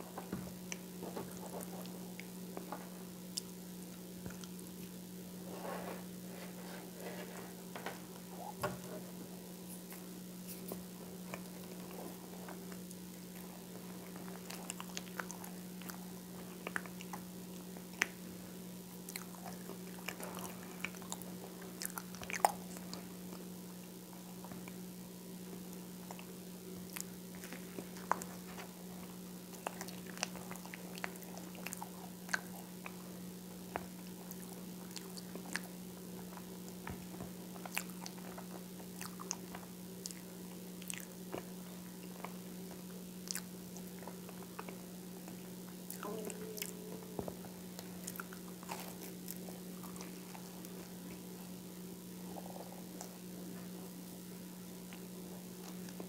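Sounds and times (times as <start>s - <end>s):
chewing crunchy toast: 9.7s - 24.8s, 25.4s - 56.0s
low hum: 43.9s - 56.0s.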